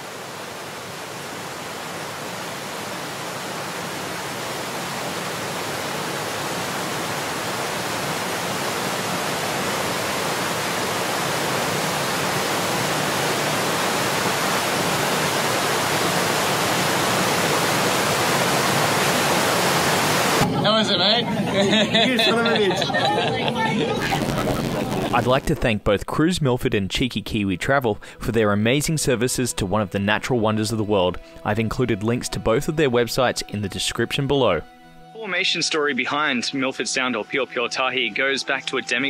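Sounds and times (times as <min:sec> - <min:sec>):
waterfall rushing: 0:00.0 - 0:20.9.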